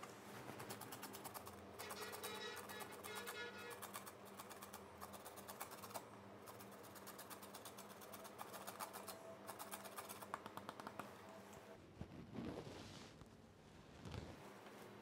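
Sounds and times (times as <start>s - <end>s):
peel rasping on metal grater: 1.8s - 4.1s.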